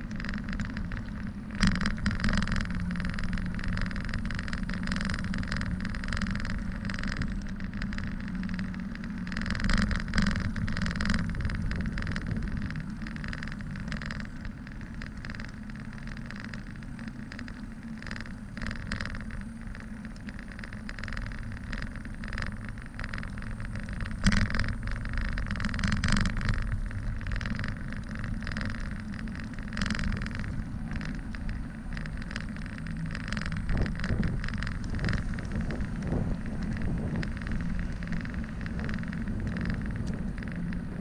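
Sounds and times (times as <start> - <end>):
wind rushing over microphone: 0.0 - 15.5, 18.2 - 41.0
bicycle knocking and rattling: 0.0 - 41.0
bicycle tyres humming: 0.0 - 41.0.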